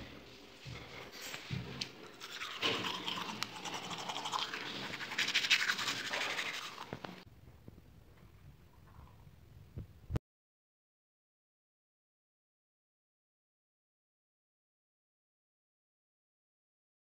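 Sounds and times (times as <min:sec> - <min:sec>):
teeth brushing: 0:02.0 - 0:07.2.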